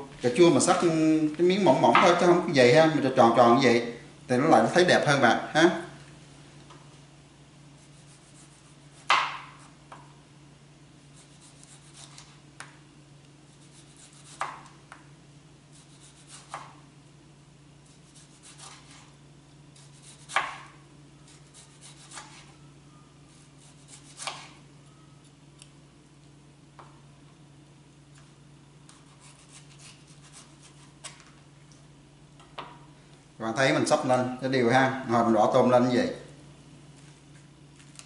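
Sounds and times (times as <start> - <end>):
knife cutting and scraping: 7.8 - 9.8, 11.2 - 12.4, 13.5 - 14.7, 15.7 - 16.8, 17.8 - 19.1, 19.8 - 20.7, 21.3 - 22.6, 23.3 - 24.6, 28.9 - 31.3.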